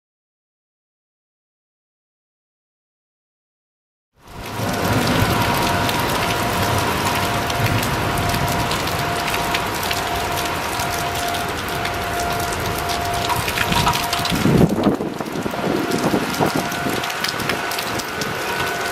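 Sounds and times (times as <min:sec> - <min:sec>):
heavy rain: 0:04.2 - 0:18.9
level crossing warning bell: 0:04.3 - 0:18.9.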